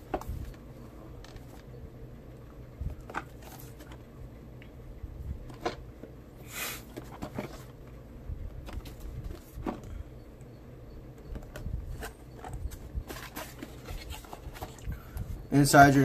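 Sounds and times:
cardboard scraping: 12.0s - 14.8s.

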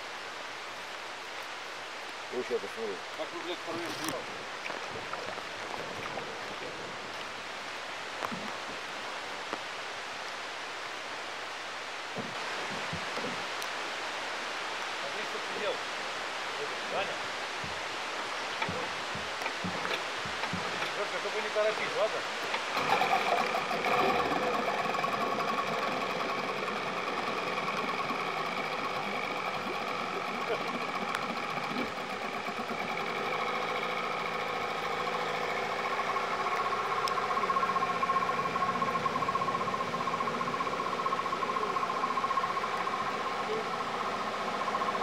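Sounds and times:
river water flowing: 0.0s - 45.0s
outboard motor running: 3.4s - 7.2s, 18.6s - 21.4s, 22.3s - 45.0s.

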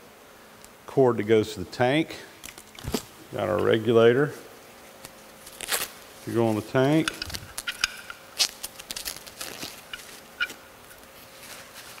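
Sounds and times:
packaging crinkling: 5.0s - 12.0s
small handling clicks: 7.0s - 9.0s.

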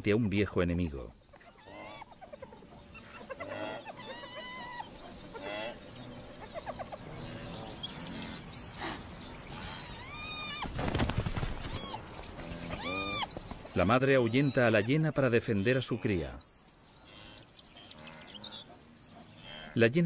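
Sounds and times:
high-pitched animal cries: 3.0s - 5.7s, 9.7s - 10.7s, 12.6s - 13.3s.

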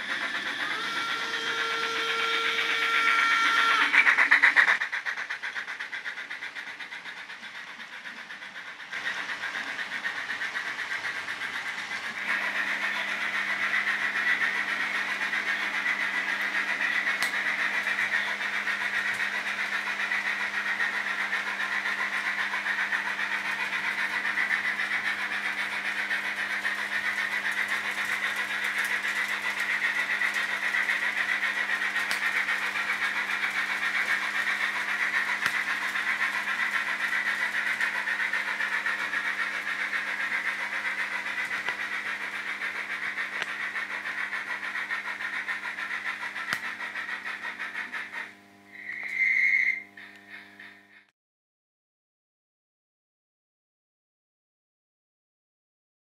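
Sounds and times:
model trains whirring on rails: 0.0s - 51.1s.

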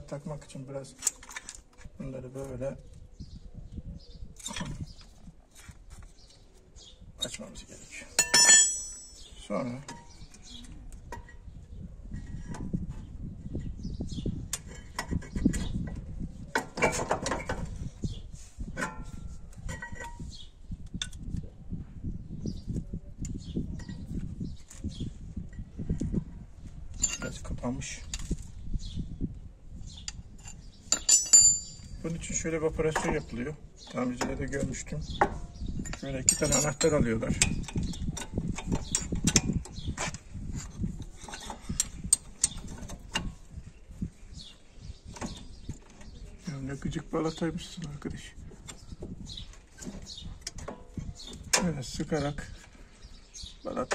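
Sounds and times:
wrenches clinking and scraping: 0.2s - 1.8s, 4.4s - 5.1s, 8.1s - 10.3s, 16.6s - 17.7s, 18.8s - 20.4s, 26.9s - 28.3s, 30.0s - 43.4s
metal brake parts clinking: 8.2s - 9.3s, 30.9s - 32.0s, 35.9s - 37.7s.

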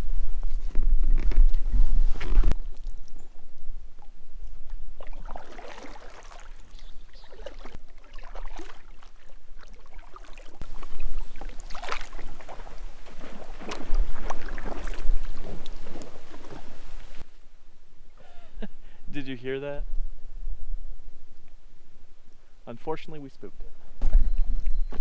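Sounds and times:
kayak paddle splashing: 4.9s - 17.2s
kayak pushed off grassy bank: 5.0s - 17.2s.

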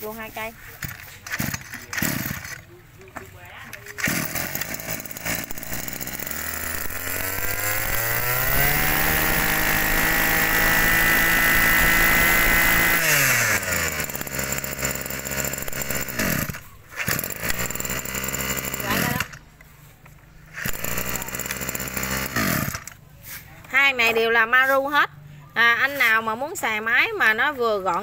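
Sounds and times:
brush-cutter engine revving: 0.8s - 2.7s, 3.7s - 19.5s, 20.4s - 23.0s.

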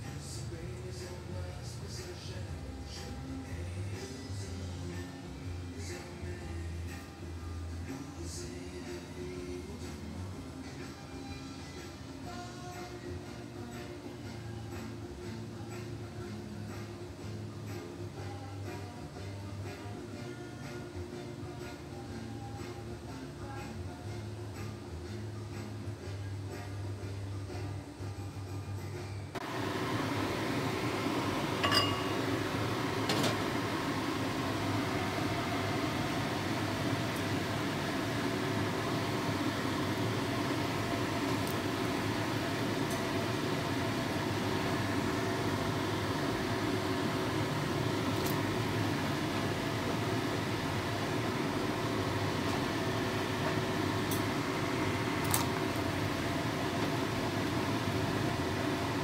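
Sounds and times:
fan motor humming: 29.3s - 59.0s.

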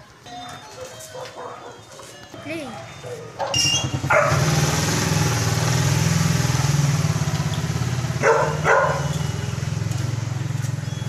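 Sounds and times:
motorcycle engine idling: 3.4s - 11.0s.

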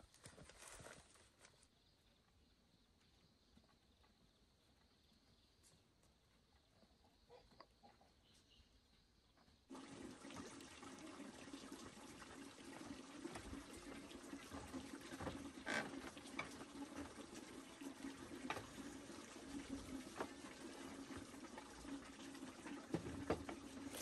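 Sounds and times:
water running: 9.7s - 24.0s.

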